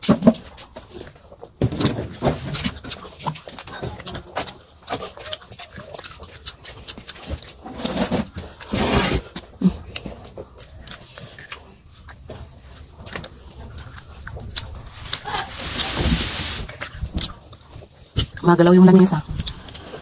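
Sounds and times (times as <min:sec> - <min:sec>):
wet chewing and lip smacks: 0:02.5 - 0:16.0, 0:16.7 - 0:20.0
breathy hisses: 0:14.8 - 0:16.8.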